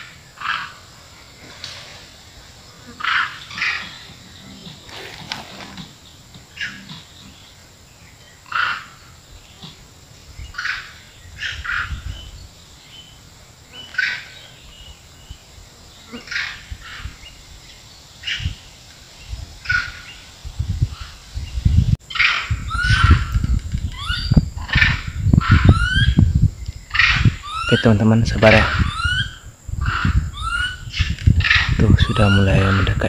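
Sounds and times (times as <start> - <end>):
macaques chirping and shrieking: 2.9 - 7.4, 22.1 - 26.2, 26.9 - 28.0, 28.6 - 33.0.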